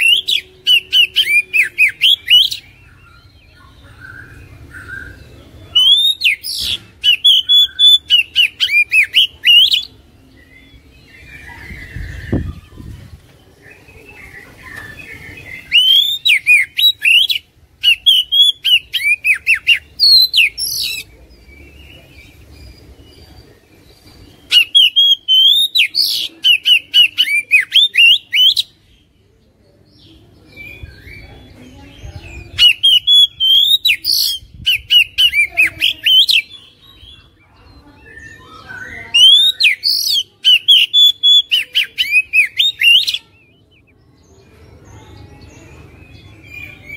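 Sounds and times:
bird singing whistled phrases: 0:00.0 - 0:13.0, 0:13.8 - 0:21.1, 0:24.5 - 0:28.8, 0:32.5 - 0:37.2, 0:38.0 - 0:44.0.

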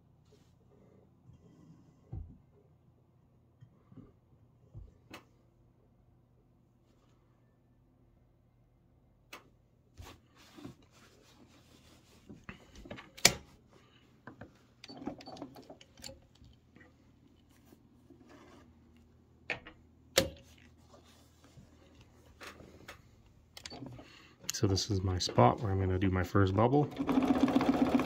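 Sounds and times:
fabric rustling: 0:10.0 - 0:12.5.

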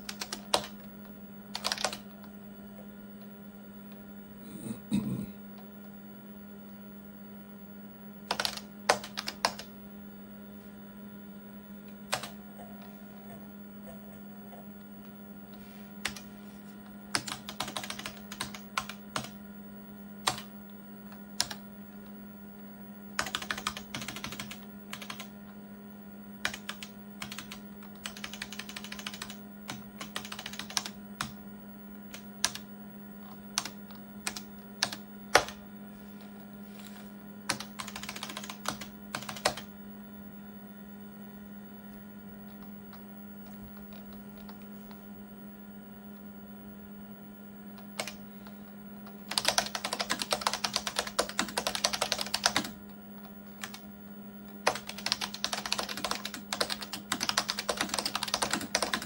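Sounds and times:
keyboard keys clicking: 0:00.0 - 0:00.9, 0:01.5 - 0:02.3, 0:08.3 - 0:09.7, 0:12.1 - 0:12.4, 0:17.1 - 0:19.4, 0:20.2 - 0:20.5, 0:21.4 - 0:21.6, 0:23.2 - 0:25.3, 0:26.4 - 0:31.4, 0:37.5 - 0:39.7, 0:43.4 - 0:45.0, 0:47.8 - 0:48.2, 0:49.3 - 0:52.8, 0:54.6 - 0:59.0
steady low hum: 0:00.0 - 0:59.0.

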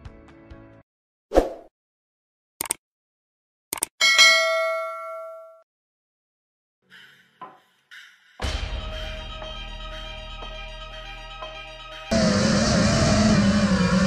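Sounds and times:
short clicks: 0:02.6 - 0:02.8, 0:03.7 - 0:03.9
bell-like ding: 0:04.0 - 0:05.6.

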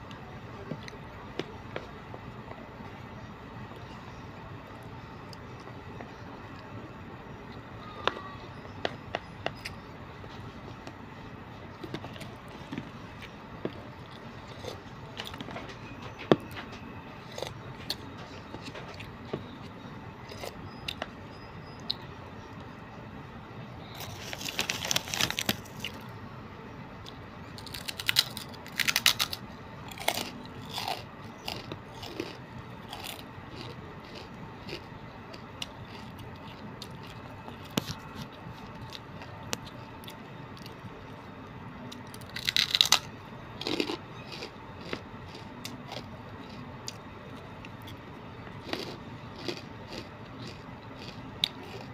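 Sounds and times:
chewing: 0:11.7 - 0:21.2, 0:27.0 - 0:41.1, 0:43.6 - 0:51.9
loud crunching: 0:23.9 - 0:26.0, 0:27.6 - 0:39.8, 0:42.2 - 0:46.6, 0:48.6 - 0:51.9.

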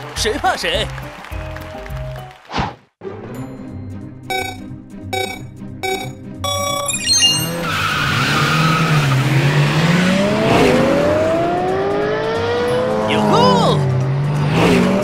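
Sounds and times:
countdown beeps: 0:04.3 - 0:07.7
higher go tone: 0:04.3 - 0:07.8
race car engines revving: 0:07.5 - 0:15.0.

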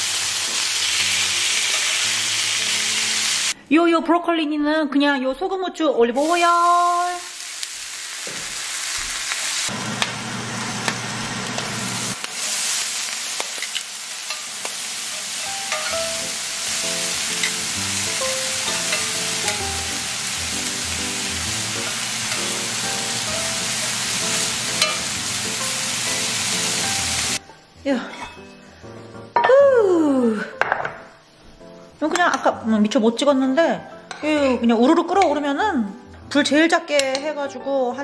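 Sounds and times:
food sizzling in a pan: 0:00.0 - 0:03.6, 0:06.2 - 0:30.3
background music: 0:15.3 - 0:38.0.

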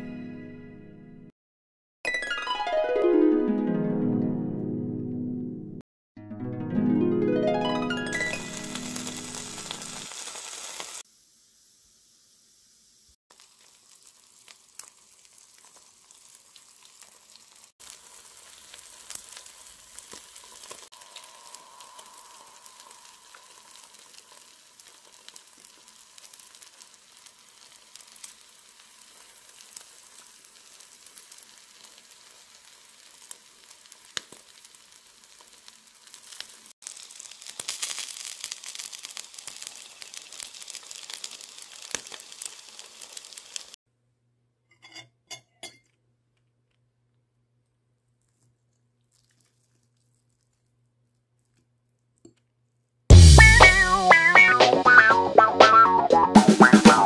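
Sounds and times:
eggs sizzling in a pan: 0:08.1 - 0:43.8.

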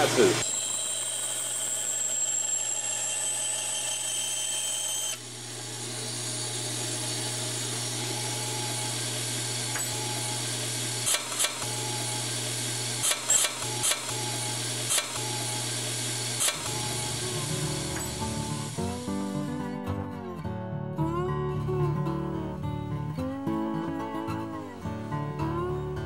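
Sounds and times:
bandsaw running: 0:00.0 - 0:19.6.

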